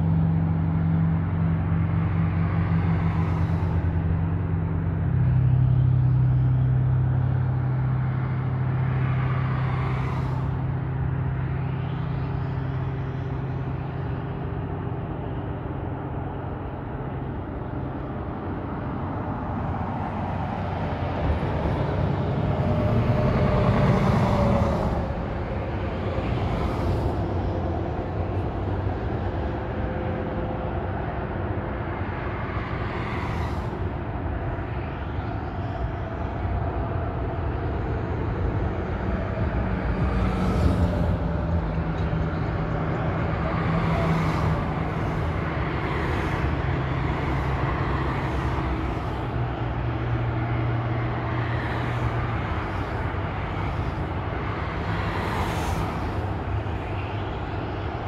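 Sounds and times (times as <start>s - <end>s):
cars and trucks passing: 0.0s - 58.0s
low engine drone: 0.0s - 58.0s.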